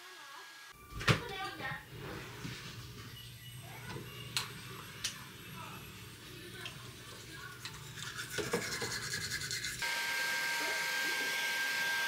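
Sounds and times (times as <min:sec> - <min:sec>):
whirring appliance with high whine: 0:00.0 - 0:00.8, 0:09.8 - 0:12.0
scratchy rubbing: 0:07.1 - 0:09.8.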